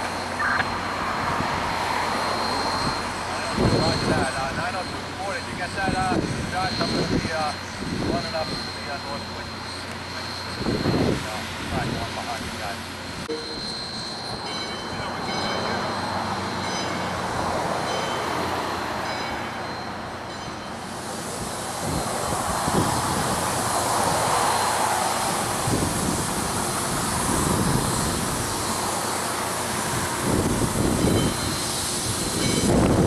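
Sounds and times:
steam hissing: 0:00.9 - 0:16.6, 0:20.7 - 0:33.0
steam locomotive puffs: 0:20.5 - 0:33.0.

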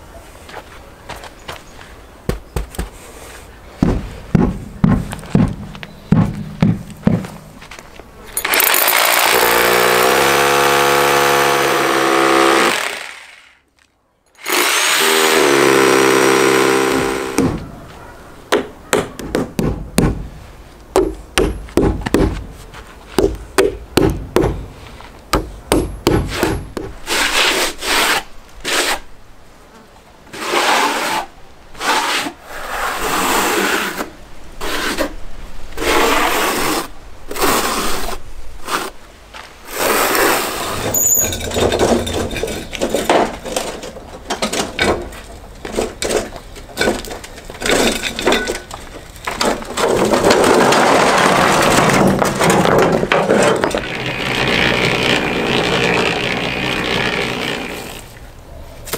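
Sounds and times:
hammer strikes: 0:03.8 - 0:07.4, 0:21.0 - 0:22.4, 0:25.3 - 0:26.9
hammer drill boring into wall: 0:08.4 - 0:13.5, 0:14.4 - 0:17.4, 0:53.6 - 0:58.0.

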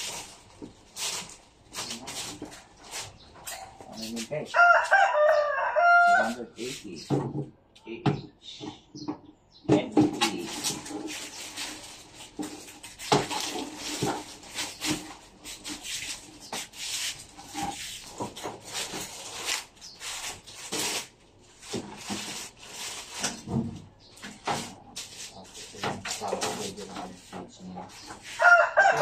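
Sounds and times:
plastic wrapping crinkling: 0:00.0 - 0:03.2, 0:10.4 - 0:23.6.

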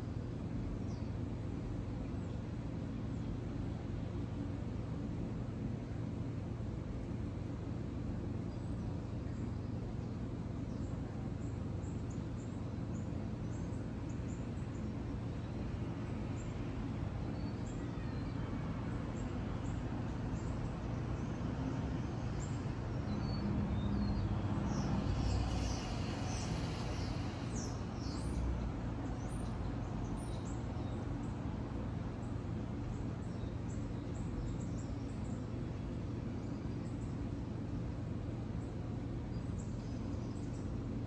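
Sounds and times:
songbirds twittering: 0:08.4 - 0:16.6, 0:22.2 - 0:41.0.

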